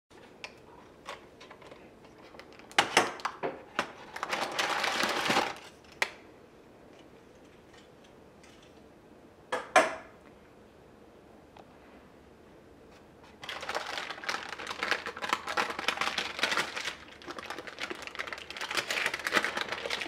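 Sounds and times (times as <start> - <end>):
parchment paper crackling: 4.0 - 5.8, 13.2 - 20.0.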